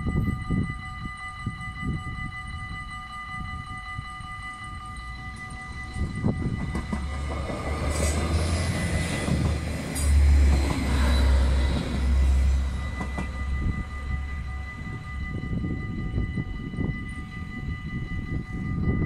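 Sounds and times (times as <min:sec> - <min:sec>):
crossing warning bell ringing: 0:00.0 - 0:19.0
train rumbling past: 0:04.9 - 0:19.0.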